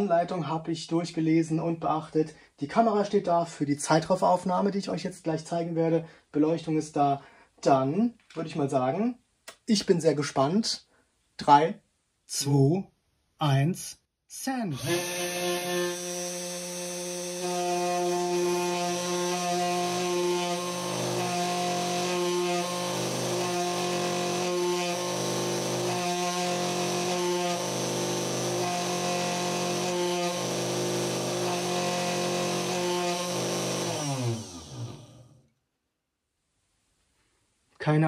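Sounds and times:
spindle motor whining: 0:14.7 - 0:35.4
spindle winding down: 0:14.7 - 0:35.4.

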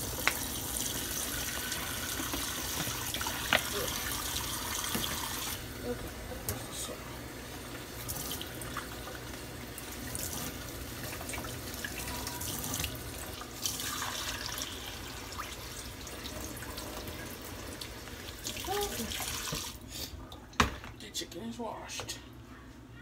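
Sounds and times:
tap running into sink: 0:04.7 - 0:05.4.

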